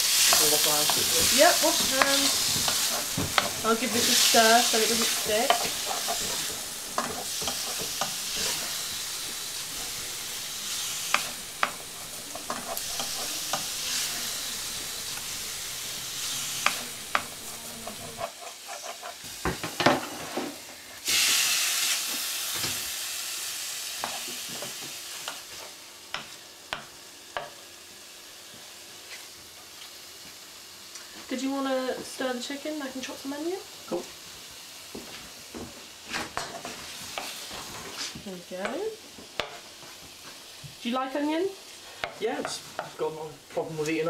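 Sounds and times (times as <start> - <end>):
utensil scraping a pan: 0.0 - 21.4
chicken sizzling in a frying pan: 0.0 - 44.0.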